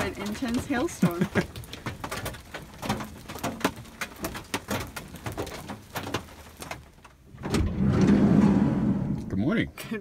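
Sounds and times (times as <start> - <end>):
rain drops tapping on roof: 0.0 - 8.1
low rushing noise: 7.6 - 9.5.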